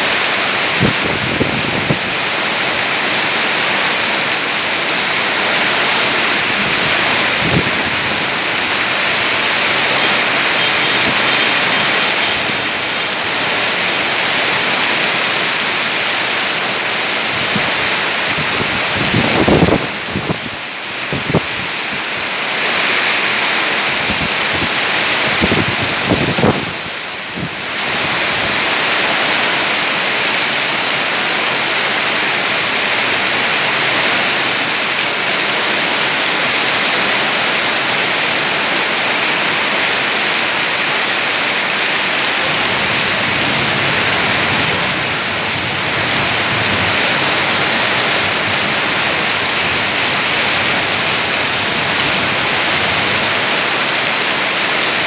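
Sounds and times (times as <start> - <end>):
heavy rain through foliage: 0.0 - 55.0
strong wind: 0.0 - 55.0.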